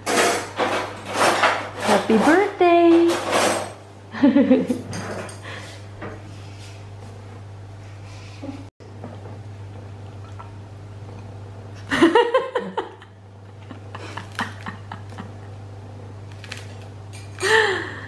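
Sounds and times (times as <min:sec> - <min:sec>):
steady low hum: 0:03.9 - 0:18.0.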